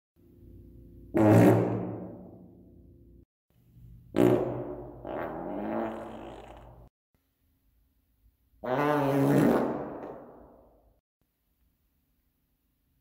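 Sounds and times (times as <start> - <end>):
farts echoing: 1.1 - 2.4, 4.1 - 6.9, 8.6 - 10.6.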